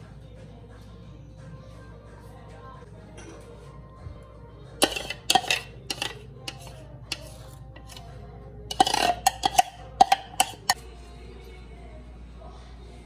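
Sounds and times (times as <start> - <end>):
spoon scraping glass bowl: 4.8 - 10.8.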